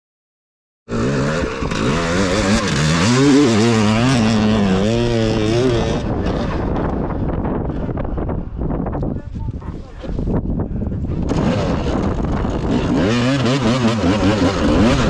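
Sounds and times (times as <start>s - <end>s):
dirt bike engine revving: 0.9s - 7.2s, 11.1s - 15.0s.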